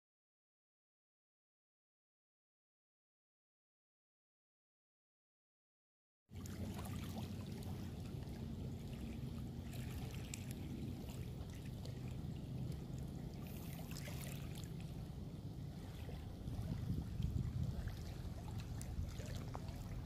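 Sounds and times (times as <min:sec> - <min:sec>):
low steady hum: 0:06.4 - 0:20.0
small waves lapping on pebbles: 0:06.4 - 0:20.0.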